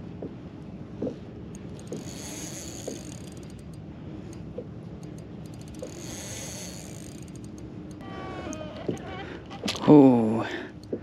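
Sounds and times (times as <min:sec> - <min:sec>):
fishing reel ticking and whirring: 0:01.6 - 0:04.4, 0:05.0 - 0:08.7.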